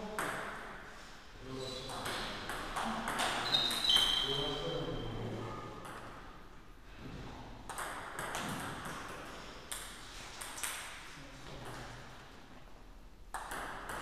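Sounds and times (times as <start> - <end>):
table tennis ball bouncing: 0.1 - 0.8, 1.9 - 4.2, 5.8 - 6.5, 7.7 - 11.9, 13.3 - 14.0.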